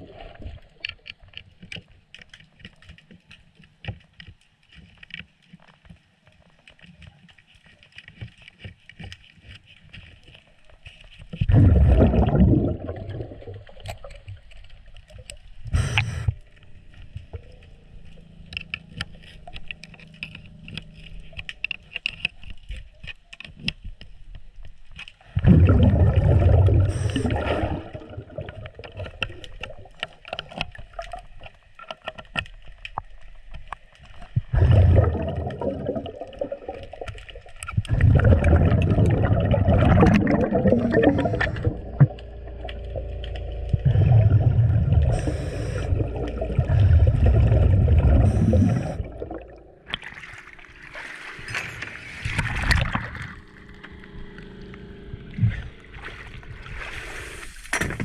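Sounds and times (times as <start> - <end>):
exhaled bubbles underwater: 0.0 - 0.9, 11.3 - 17.6, 25.3 - 31.2, 34.2 - 57.5
water splashing: 6.6 - 23.2, 25.2 - 58.0.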